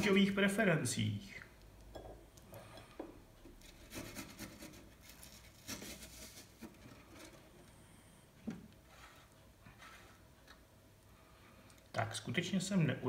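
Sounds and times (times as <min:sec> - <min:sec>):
grater scraping on plate: 0:03.6 - 0:07.4.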